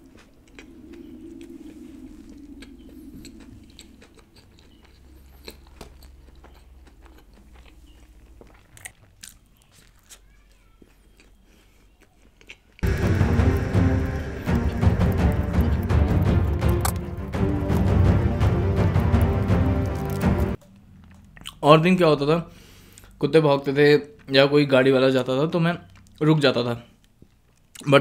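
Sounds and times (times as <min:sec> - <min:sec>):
biting and chewing burger: 0:00.0 - 0:12.9, 0:14.6 - 0:21.6, 0:26.9 - 0:27.9
construction hum: 0:12.8 - 0:21.2.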